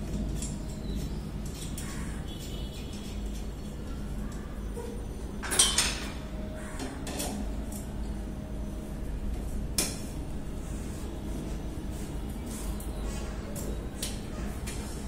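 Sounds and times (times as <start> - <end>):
metal parts clinking and clanking: 5.4 - 6.2.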